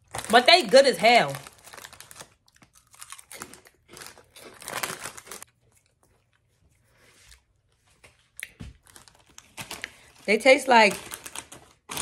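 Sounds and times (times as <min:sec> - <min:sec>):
chip bag crinkling: 0:00.0 - 0:05.5, 0:08.8 - 0:12.0.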